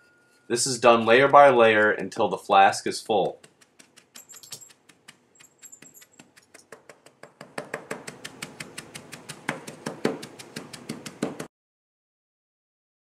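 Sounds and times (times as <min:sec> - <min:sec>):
rammer tapping on sand: 0:00.8 - 0:11.5.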